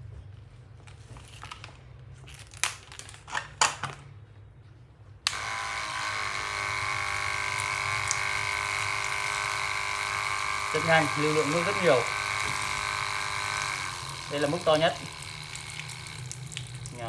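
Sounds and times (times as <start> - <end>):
water pump whining: 5.3 - 17.0
water pumping through hose: 5.3 - 17.0.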